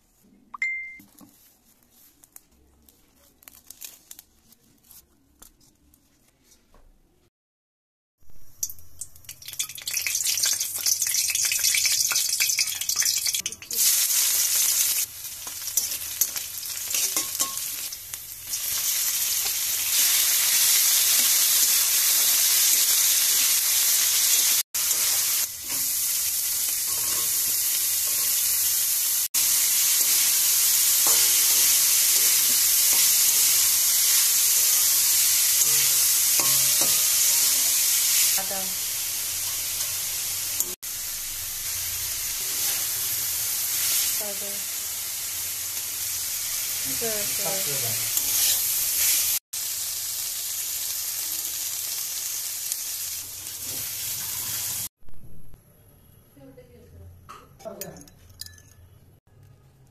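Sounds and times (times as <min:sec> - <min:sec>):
food sizzling in wok: 0:08.3 - 0:54.9
spatula scraping metal wok: 0:15.4 - 0:17.9, 0:26.8 - 0:28.6, 0:42.4 - 0:43.2, 0:47.4 - 0:49.4.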